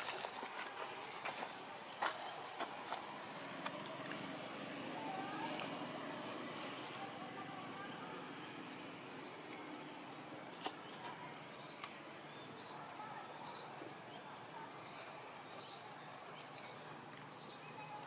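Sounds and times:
insect drone: 0:00.0 - 0:18.0.

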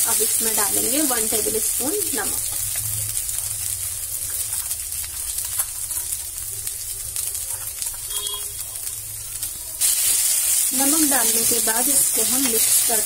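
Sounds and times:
food sizzling in oil: 0:00.0 - 0:13.0.

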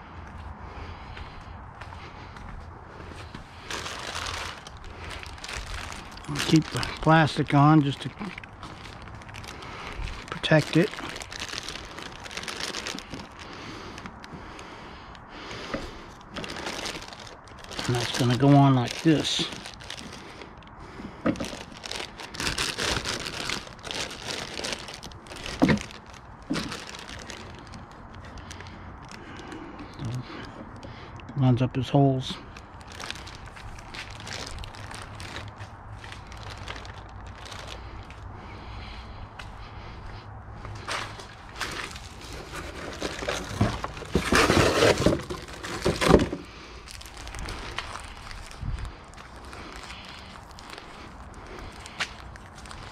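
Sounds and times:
plastic bag crinkling: 0:03.6 - 0:14.3, 0:16.1 - 0:20.5, 0:21.2 - 0:30.4, 0:32.3 - 0:38.1, 0:40.8 - 0:52.9
cardboard flaps rustling and scraping: 0:41.6 - 0:46.5.

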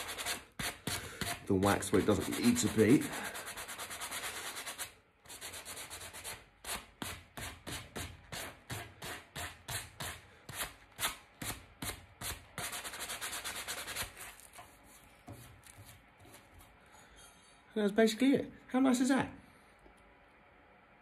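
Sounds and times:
abrasive pad rubbing on wood: 0:00.0 - 0:10.1.

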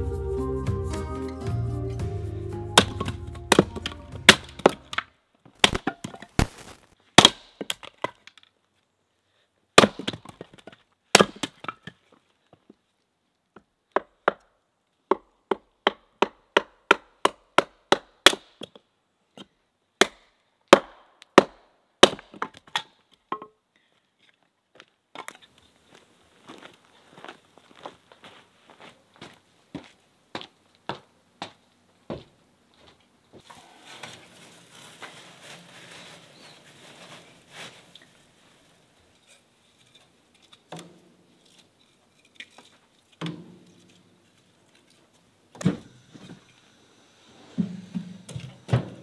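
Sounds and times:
background music: 0:00.0 - 0:05.0
hatchet chopping wood: 0:02.8 - 0:08.2, 0:09.8 - 0:10.4, 0:11.1 - 0:11.8, 0:13.9 - 0:14.5, 0:15.1 - 0:18.8, 0:20.0 - 0:23.5
wood cracking apart: 0:02.8 - 0:08.5.

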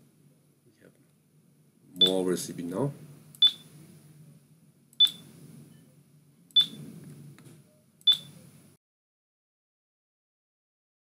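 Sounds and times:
short high touch beeps: 0:06.6 - 0:06.8, 0:08.1 - 0:08.4.

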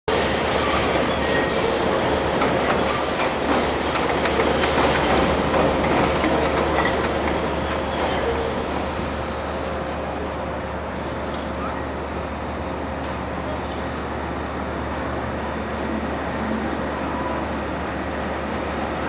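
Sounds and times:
wheel squeals: 0:00.1 - 0:08.8
train rumbling on steel rails: 0:00.1 - 0:19.0.

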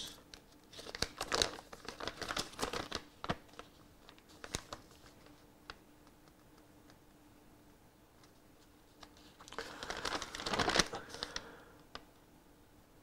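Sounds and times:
paper crinkling and rustling: 0:00.3 - 0:05.8, 0:08.2 - 0:11.6.

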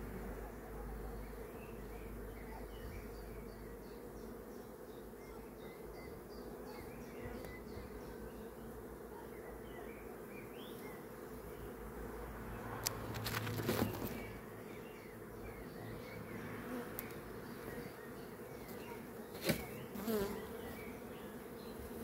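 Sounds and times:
bees buzzing: 0:00.0 - 0:22.0
bee flying past microphone: 0:12.6 - 0:14.4, 0:18.6 - 0:22.0.

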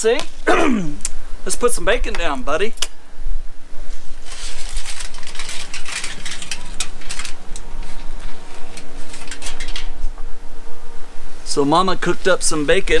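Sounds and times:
faint steady hum: 0:00.0 - 0:13.0
crinkling and crackling handling: 0:03.9 - 0:10.3.

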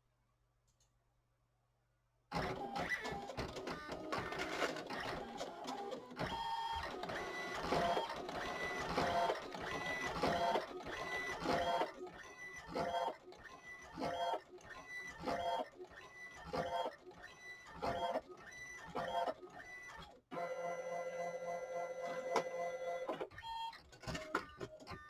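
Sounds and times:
printer clicks and clacks: 0:02.3 - 0:20.5, 0:22.0 - 0:25.0
printer motors whirring: 0:02.3 - 0:24.4.

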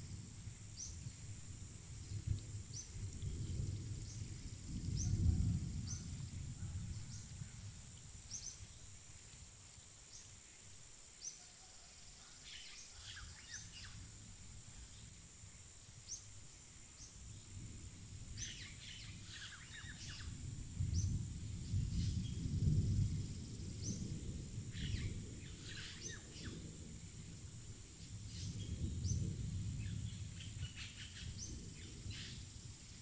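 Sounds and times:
high insect-like hiss: 0:00.0 - 0:33.0.

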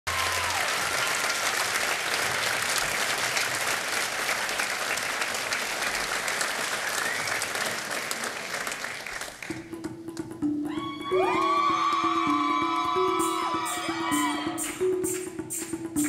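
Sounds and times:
audience applauding: 0:00.1 - 0:09.6.

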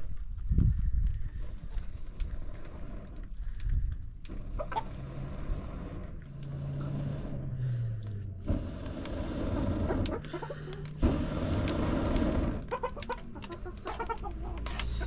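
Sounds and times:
steady rumbling noise: 0:00.0 - 0:15.0
chickens clucking: 0:04.6 - 0:04.9, 0:09.9 - 0:11.0, 0:12.6 - 0:15.0.

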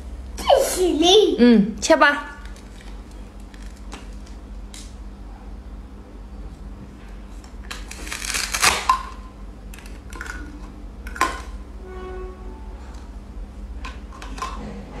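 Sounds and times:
velcro ripping apart: 0:07.7 - 0:08.9.

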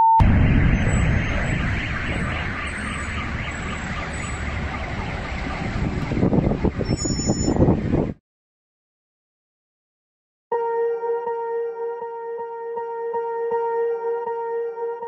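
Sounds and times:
explosion rumbling roar: 0:00.2 - 0:08.2.

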